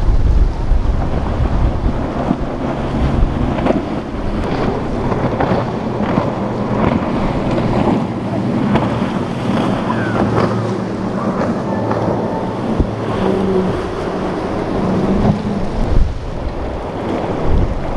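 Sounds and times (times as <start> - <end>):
boat engine hum: 0.0 - 17.9
hull slapping waves: 0.0 - 17.9
wind buffeting microphone: 0.0 - 17.9.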